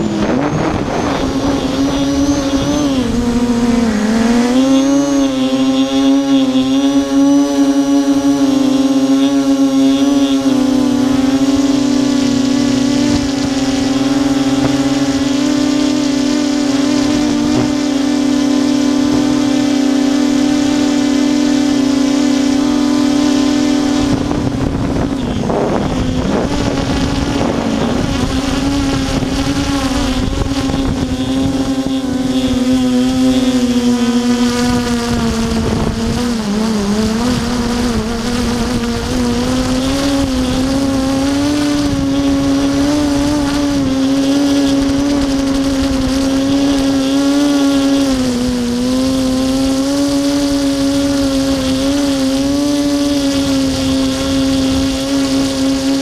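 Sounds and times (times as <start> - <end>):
rushing noise: 0.0 - 6.1
quadcopter motors whining: 0.0 - 56.0.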